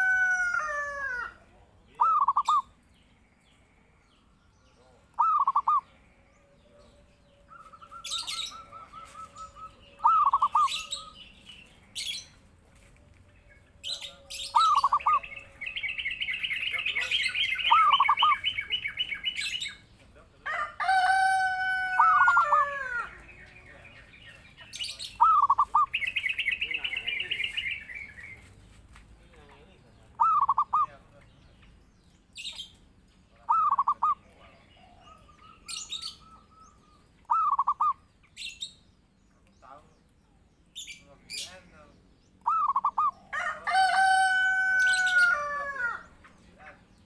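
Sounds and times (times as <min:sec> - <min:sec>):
rooster crowing: 0:00.0 - 0:01.4, 0:20.4 - 0:23.2, 0:43.3 - 0:46.1
dove cooing: 0:01.9 - 0:02.7, 0:05.2 - 0:05.9, 0:07.4 - 0:11.2, 0:14.0 - 0:19.4, 0:20.9 - 0:23.1, 0:25.2 - 0:27.4, 0:30.2 - 0:31.0, 0:33.4 - 0:38.0, 0:42.4 - 0:44.2
small bird trilling: 0:02.0 - 0:02.7, 0:05.2 - 0:05.9, 0:07.5 - 0:11.2, 0:13.8 - 0:19.8, 0:35.1 - 0:38.8, 0:42.4 - 0:43.2.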